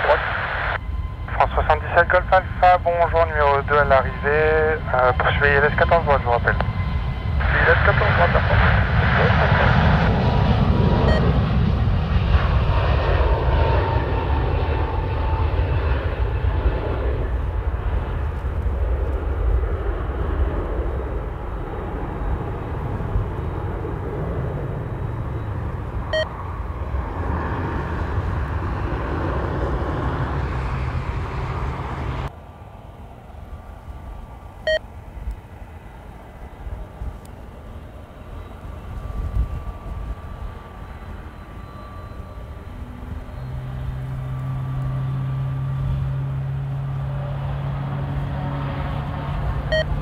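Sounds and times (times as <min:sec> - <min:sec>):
jet engines rumbling: 0:00.0 - 0:50.0
short beeps: 0:11.0 - 0:11.4, 0:25.3 - 0:26.3, 0:38.2 - 0:45.8, 0:49.7 - 0:50.0.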